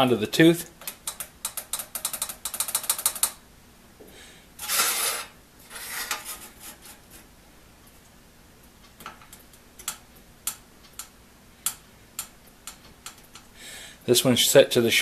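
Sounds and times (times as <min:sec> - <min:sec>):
metal scraping along saw blade: 0:04.6 - 0:06.9.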